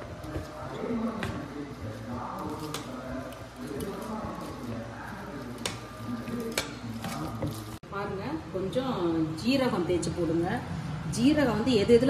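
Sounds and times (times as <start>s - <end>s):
spoon stirring thick batter: 0.0s - 7.8s.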